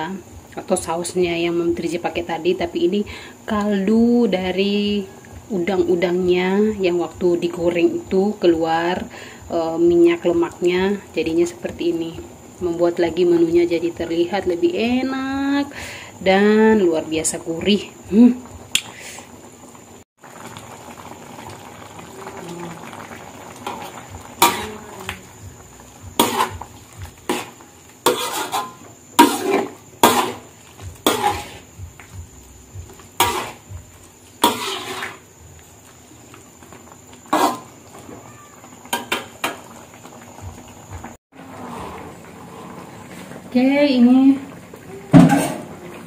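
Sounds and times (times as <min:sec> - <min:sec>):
curry bubbling: 0:07.4 - 0:46.0
metal spatula scraping metal pan: 0:24.4 - 0:24.8, 0:26.2 - 0:26.6, 0:27.2 - 0:31.7, 0:33.2 - 0:33.6, 0:34.4 - 0:35.2, 0:37.3 - 0:37.7.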